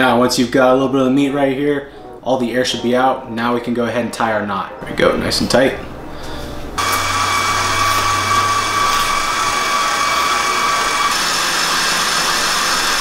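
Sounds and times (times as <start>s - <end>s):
sausage stuffer motor whining: 6.8s - 13.0s.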